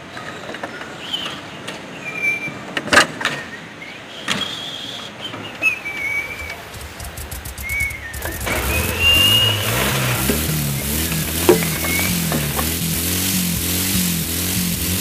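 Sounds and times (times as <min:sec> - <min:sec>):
sharp knocks: 0:06.4 - 0:13.1.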